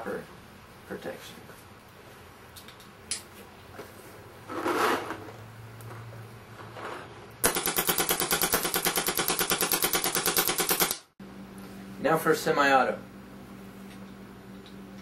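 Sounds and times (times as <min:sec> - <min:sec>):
paintball marker firing rapidly: 0:07.4 - 0:11.1.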